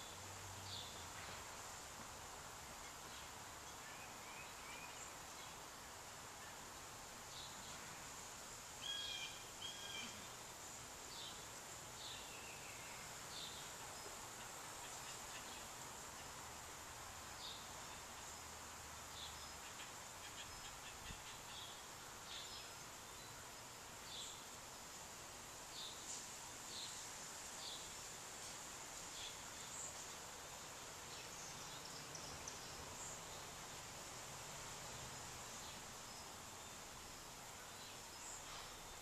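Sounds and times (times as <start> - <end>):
small birds chirping: 25.7 - 33.8.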